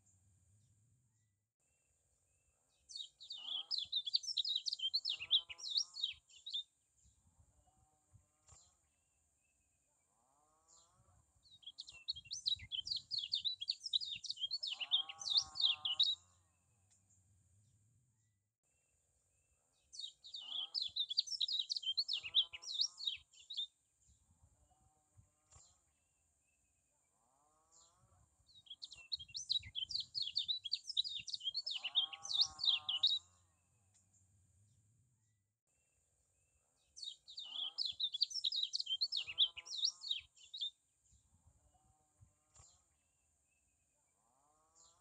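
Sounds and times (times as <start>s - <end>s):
bird twittering song: 2.7s - 7.3s, 10.7s - 17.8s, 19.7s - 24.3s, 27.7s - 34.3s, 35.9s - 41.4s
lower wavering bird calls: 11.9s - 16.2s, 28.6s - 33.3s.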